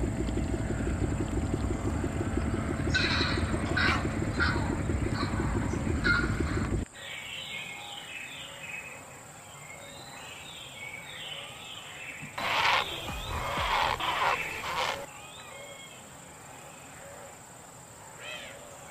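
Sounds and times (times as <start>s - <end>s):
loud low rumble: 0.0s - 6.9s, 12.4s - 15.1s
songbirds chirping: 0.0s - 18.9s
heron calls: 2.9s - 6.7s, 12.4s - 15.1s.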